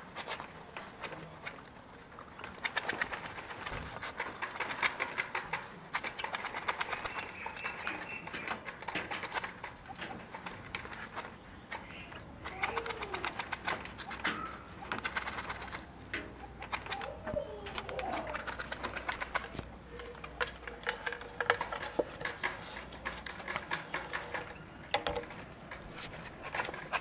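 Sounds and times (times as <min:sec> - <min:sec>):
soft bird calls: 0:06.2 - 0:26.5.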